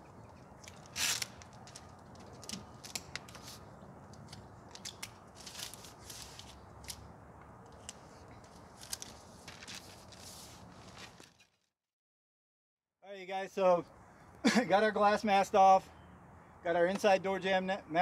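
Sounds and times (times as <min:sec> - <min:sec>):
paper and tape crinkling: 0:00.6 - 0:07.0, 0:07.8 - 0:11.7.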